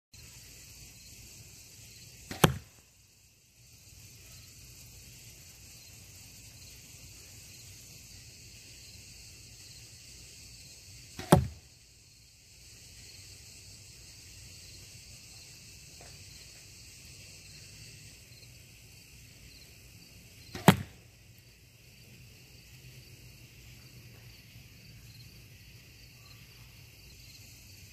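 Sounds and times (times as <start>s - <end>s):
insects chirring: 0.2s - 27.9s
arrow smacking into bags: 2.3s - 2.8s, 11.2s - 11.7s, 20.5s - 21.0s
bow string snap: 2.3s - 2.8s, 11.2s - 11.6s, 20.5s - 21.1s.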